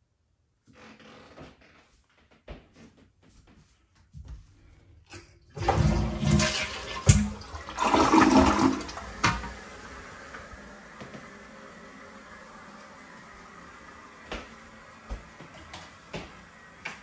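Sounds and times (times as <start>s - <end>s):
toilet flushing: 5.1s - 17.0s
toilet tank refilling hiss: 5.1s - 17.0s.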